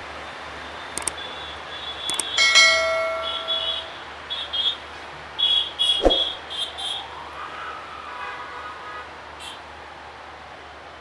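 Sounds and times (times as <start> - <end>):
ringing metallic clang: 2.4 - 4.0.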